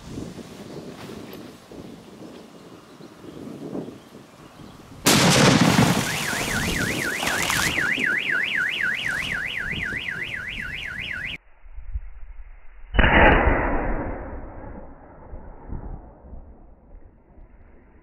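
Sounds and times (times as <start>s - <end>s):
firecracker bang: 5.1s - 6.8s
underwater firecracker explosion: 5.1s - 7.8s
car alarm warbling: 5.9s - 11.4s.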